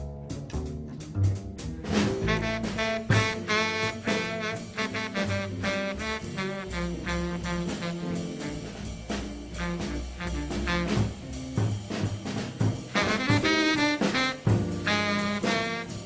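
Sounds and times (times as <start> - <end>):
drums with cymbals: 0.0 - 16.0
walking double bass: 0.0 - 16.0
horn playing fast runs: 2.2 - 11.6, 12.8 - 16.0.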